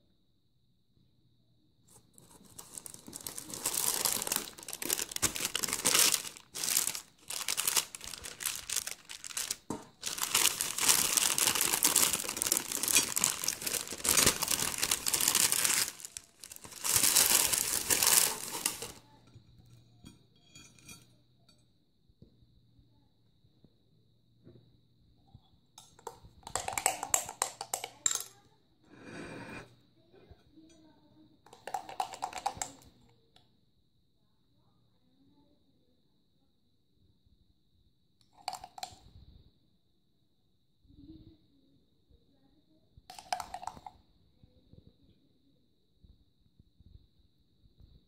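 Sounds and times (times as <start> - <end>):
baking paper crinkling: 1.9 - 19.0, 31.6 - 32.8.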